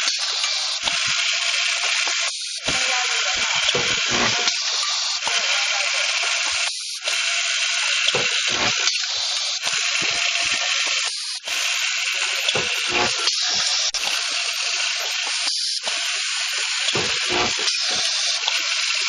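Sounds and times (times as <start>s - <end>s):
welding machine hissing rattle: 0.0s - 19.0s.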